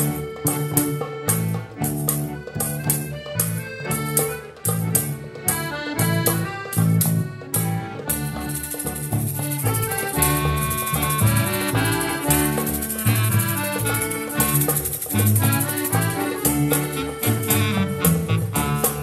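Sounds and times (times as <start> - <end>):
accordion: 0.0 - 19.0
clarinet: 0.0 - 19.0
drum kit: 0.0 - 19.0
klezmer band playing: 0.0 - 19.0
tambourine: 8.0 - 19.0.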